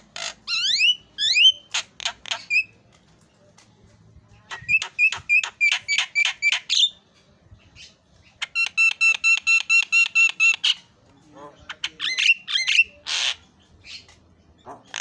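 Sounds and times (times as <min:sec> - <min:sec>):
bird calling sharp repeated notes: 0:00.0 - 0:02.8, 0:04.5 - 0:07.0, 0:08.3 - 0:10.9.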